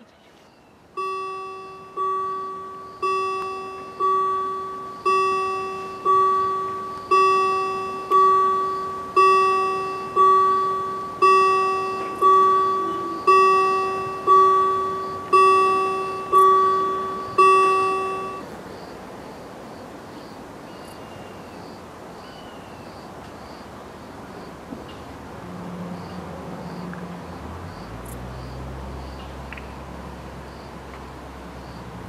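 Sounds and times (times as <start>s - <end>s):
level-crossing warning bell ringing: 1.0s - 18.6s.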